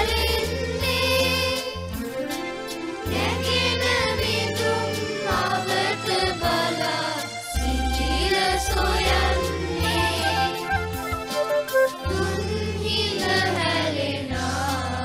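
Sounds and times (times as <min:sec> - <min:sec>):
children's choir singing: 0:00.0 - 0:02.0, 0:02.6 - 0:15.0
instrumental backing: 0:00.0 - 0:14.1
steady bass line: 0:07.6 - 0:11.4.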